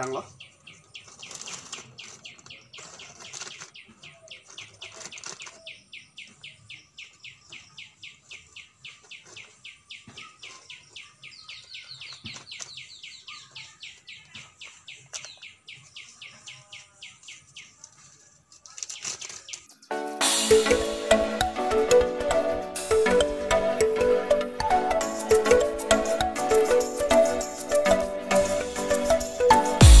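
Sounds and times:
plastic pot being handled: 0.7s - 5.8s, 11.6s - 19.7s.

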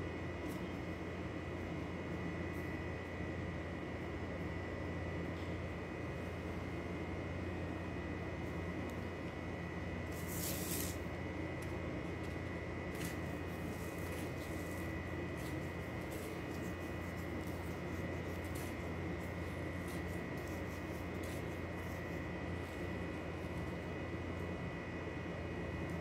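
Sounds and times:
steady background hum: 0.0s - 26.0s
dough rubbing in crumbs: 10.1s - 11.1s, 12.2s - 23.9s.

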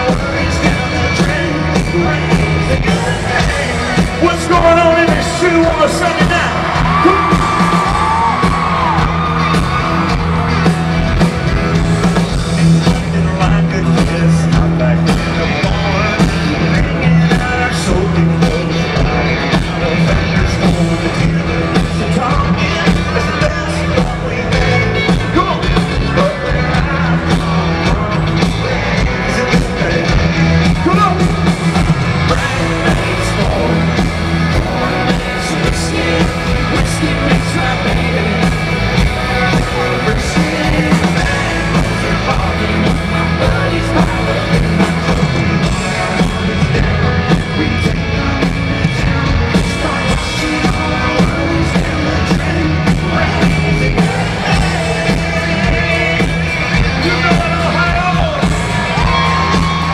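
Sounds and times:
live country rock band: 0.0s - 59.9s
man singing lead: 0.0s - 59.9s.

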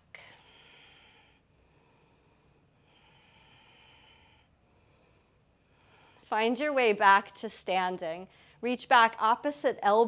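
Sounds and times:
faint breathing: 0.0s - 6.3s, 8.3s - 8.6s.

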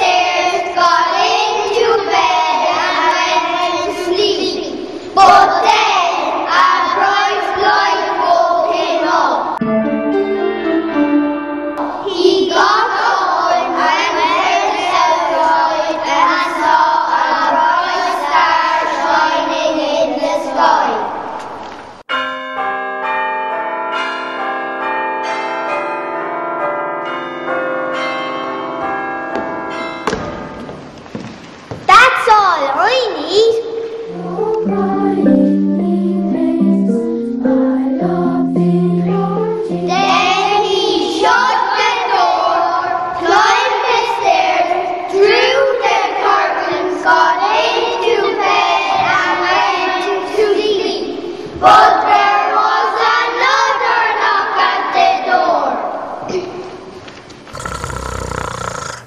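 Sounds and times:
children singing in unison: 0.0s - 9.6s, 11.8s - 21.3s, 37.4s - 55.8s
bells ringing: 22.1s - 30.5s.

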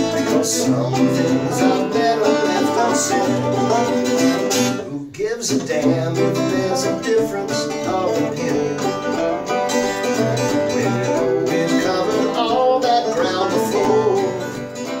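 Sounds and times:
acoustic guitar strumming: 0.0s - 15.0s
banjo picking: 0.0s - 15.0s.

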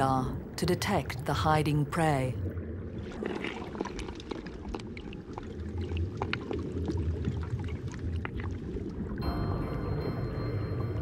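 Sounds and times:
underwater water wash: 2.4s - 11.0s.

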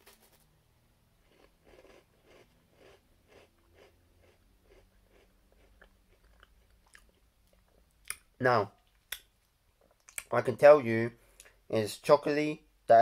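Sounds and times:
crunchy biscuit chewing: 1.1s - 8.3s.

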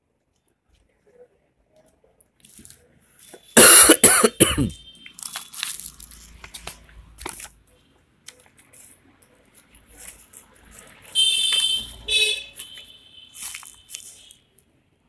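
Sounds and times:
plastic bag and paper crinkling: 2.3s - 3.5s, 5.1s - 14.7s.

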